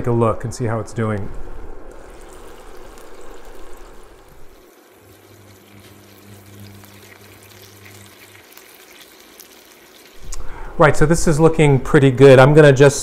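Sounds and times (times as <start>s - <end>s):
low steady hum: 0.0s - 13.0s
chicken sizzling in a skillet: 1.9s - 10.2s.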